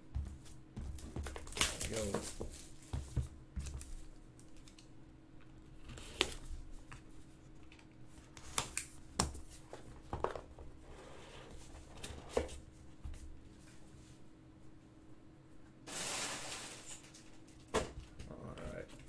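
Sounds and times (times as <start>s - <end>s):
cardboard and plastic crinkling: 0.9s - 4.8s.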